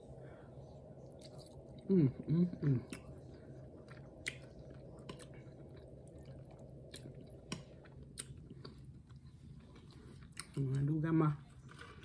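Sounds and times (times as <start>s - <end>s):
wet chewing: 2.8s - 10.8s.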